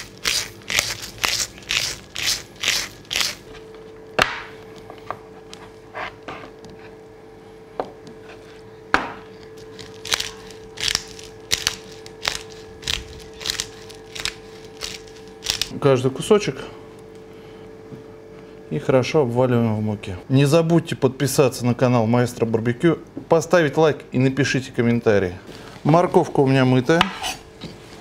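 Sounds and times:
pepper mill grinding: 0.0s - 3.5s, 9.6s - 15.7s.

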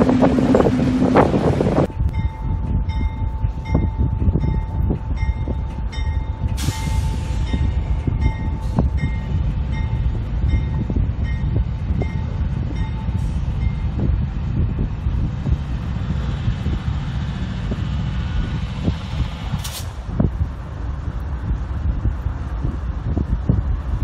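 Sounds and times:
diesel locomotives rumbling: 0.0s - 24.0s.

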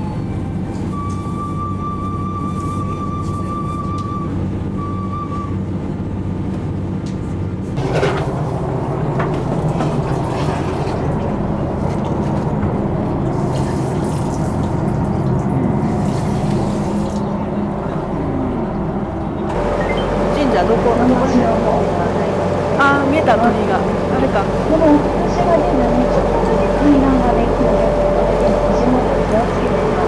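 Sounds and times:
boat engine running: 0.0s - 30.0s
water rushing along hull: 7.8s - 30.0s.

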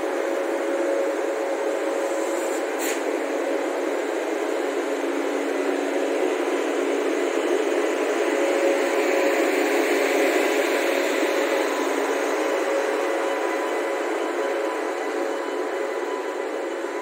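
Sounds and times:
blower and running gear rushing: 0.0s - 17.0s
electric locomotive hum: 0.0s - 17.0s.

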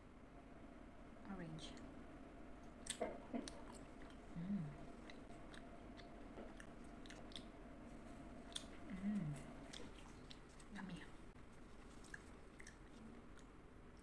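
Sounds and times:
chewing gummy candy: 2.7s - 11.1s, 11.8s - 14.0s
person humming: 4.2s - 5.1s, 8.8s - 9.9s.

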